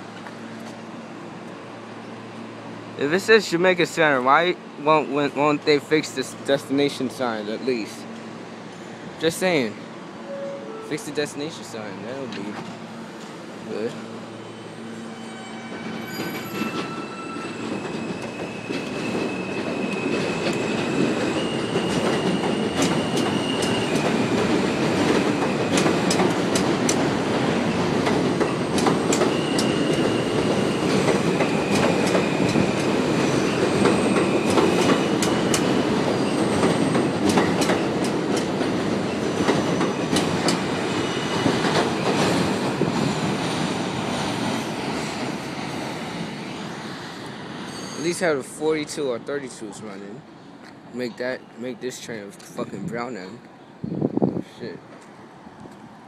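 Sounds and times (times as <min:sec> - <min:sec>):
subway train rumble: 0:00.0 - 0:56.0
wheels clicking over rail joints: 0:21.8 - 0:33.0.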